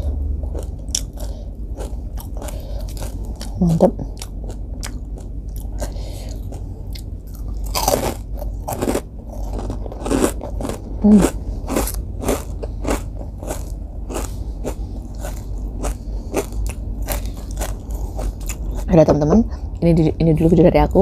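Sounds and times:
crunching and chewing rice cracker: 0:00.0 - 0:18.9.

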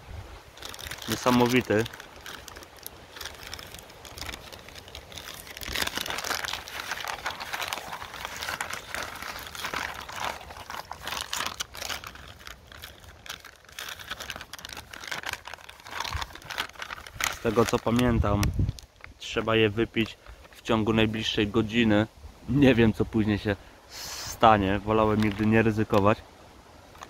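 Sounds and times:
plastic bag crinkling: 0:00.4 - 0:20.7, 0:24.9 - 0:26.0.

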